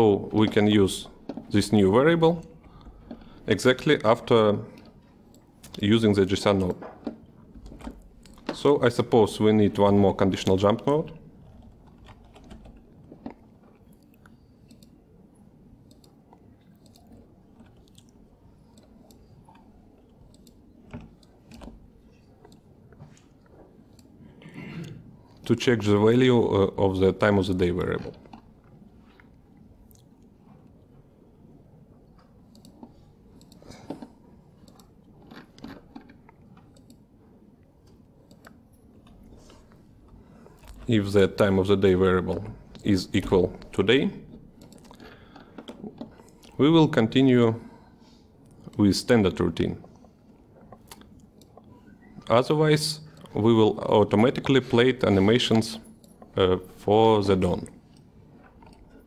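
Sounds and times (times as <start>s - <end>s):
low room hum: 0.0s - 59.0s
mouse and keyboard clicks: 15.8s - 18.1s.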